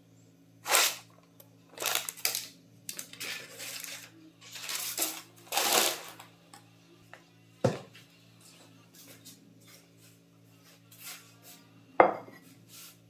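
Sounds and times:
faint low hum: 0:00.0 - 0:12.7
paper crinkling and rustling: 0:01.8 - 0:06.1.

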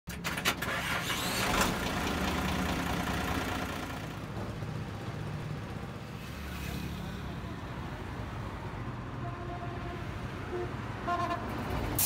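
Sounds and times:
engine idling: 0:00.7 - 0:04.5.

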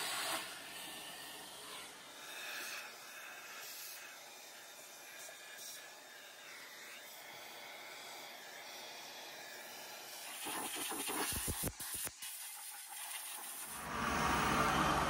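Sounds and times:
vacuum nozzle sucking air: 0:10.2 - 0:15.0.

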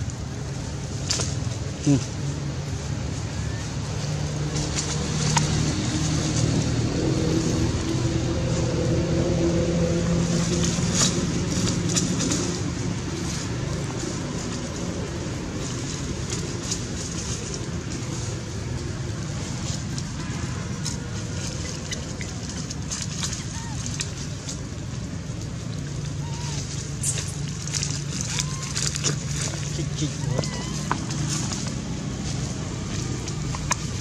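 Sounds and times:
vehicle engine running: 0:00.0 - 0:34.0.

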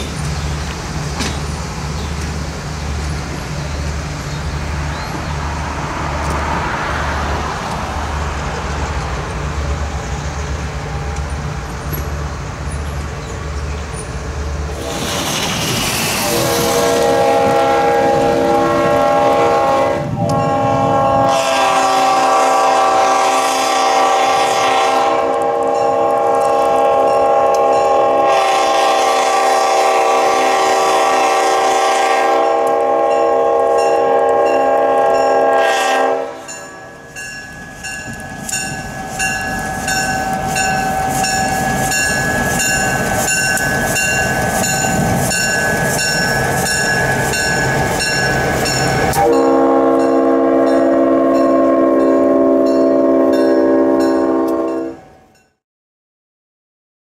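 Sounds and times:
locomotive engine rumbling: 0:00.0 - 0:55.1
locomotive air horn: 0:16.2 - 0:36.6, 0:49.0 - 0:55.0
crossing signal bell ringing: 0:33.1 - 0:35.6, 0:36.4 - 0:55.6.

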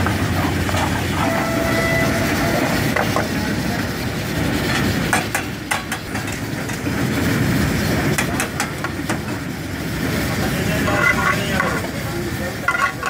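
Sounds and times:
low rumbling noise: 0:00.0 - 0:13.0.

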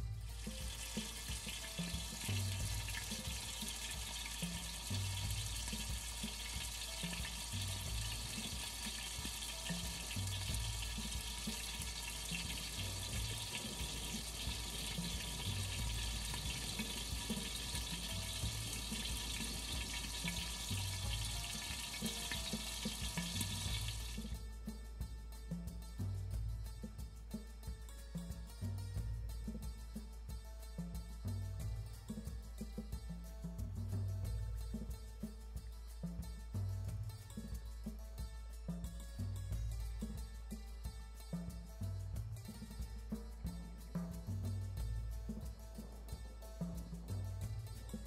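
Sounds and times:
background music with low beat: 0:00.0 - 0:48.0
oil sizzling while deep-frying: 0:00.3 - 0:24.4.

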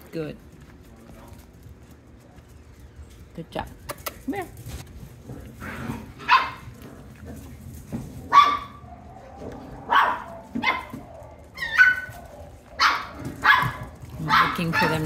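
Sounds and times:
puppies yipping and barking: 0:05.7 - 0:06.8, 0:07.9 - 0:15.0.

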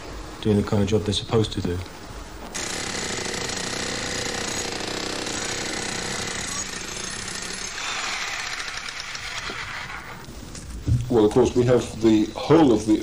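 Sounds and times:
rapid continuous jackhammer hammering: 0:02.6 - 0:09.4.

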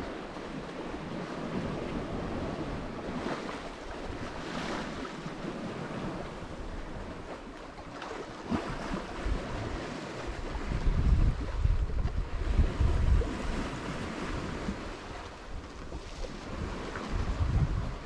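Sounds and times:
waves: 0:00.0 - 0:18.0
rush of wind: 0:08.5 - 0:18.0
wind buffeting microphone: 0:08.5 - 0:18.0.

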